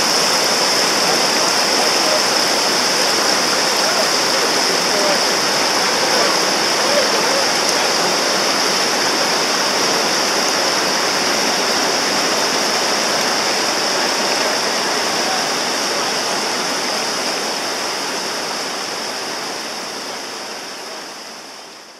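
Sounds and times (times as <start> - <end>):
river rapids rushing over rocks: 0.0 - 21.9.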